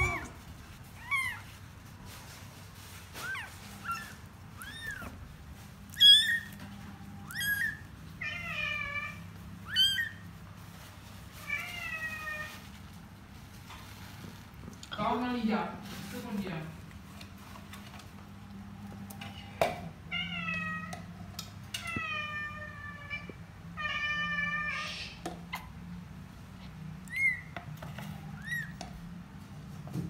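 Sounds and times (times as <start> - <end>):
cat meowing: 0.0 - 0.4, 1.0 - 1.5, 3.2 - 5.2, 6.0 - 6.5, 7.2 - 10.2.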